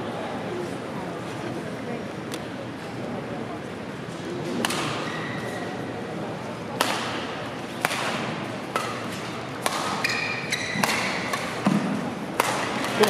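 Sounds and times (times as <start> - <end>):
crowd murmur: 0.0 - 13.0
rackets hitting shuttlecock: 4.6 - 5.3, 6.8 - 13.0
shoes squeaking on court: 10.0 - 11.3.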